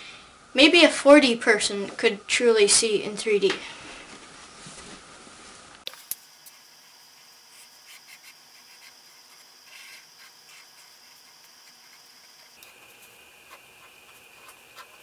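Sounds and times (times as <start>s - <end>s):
steady hiss with high tone: 3.8s - 15.0s
pen scratching on paper: 7.2s - 15.0s.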